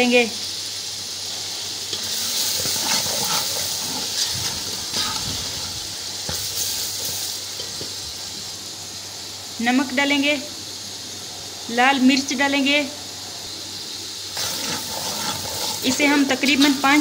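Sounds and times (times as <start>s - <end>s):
masala sizzling in hot ghee: 0.0s - 17.0s
metal ladle scraping a pot: 1.9s - 7.2s, 14.4s - 17.0s.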